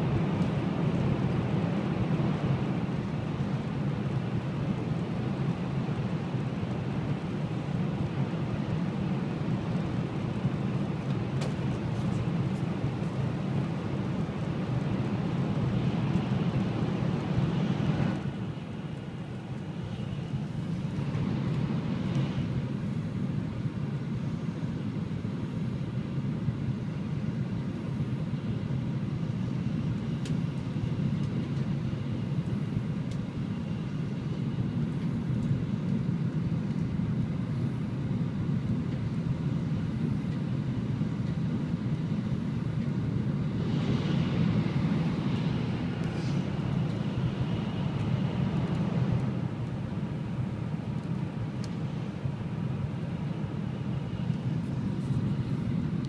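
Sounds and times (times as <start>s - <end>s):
train cabin low rumble: 0.0s - 56.0s
high hissing rush: 43.6s - 46.7s.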